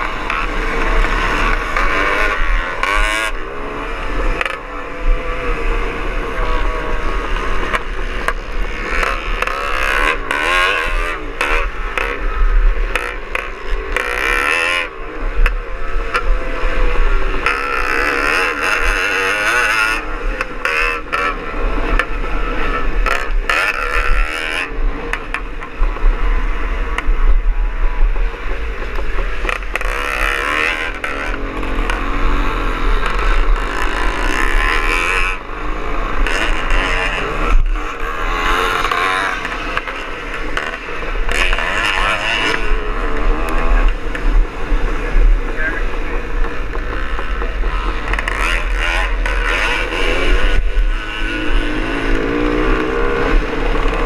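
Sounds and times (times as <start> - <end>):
motorcycle engine revving: 0.0 - 54.0
wind rumble on microphone: 42.6 - 54.0.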